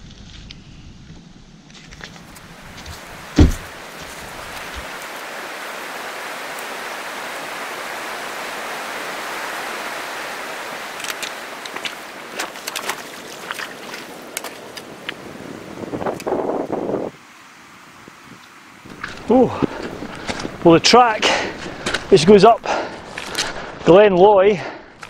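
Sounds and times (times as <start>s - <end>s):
boots splashing through puddle: 1.8s - 5.1s, 10.7s - 15.2s, 18.9s - 23.9s
river rushing over rocks: 2.4s - 15.9s
thump: 3.4s - 3.7s.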